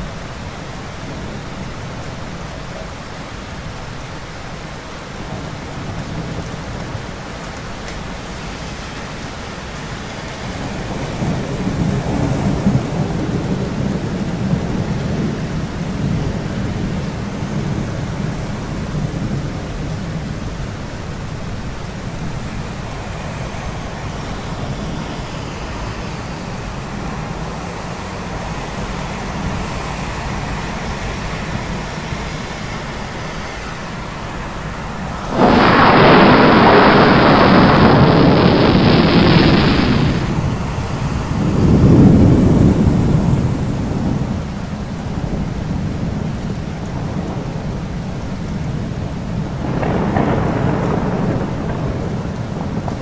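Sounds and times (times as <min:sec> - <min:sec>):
harsh storm noise: 0:00.0 - 0:53.0
steady rain: 0:00.0 - 0:53.0
low thunder rumbling: 0:05.2 - 0:53.0.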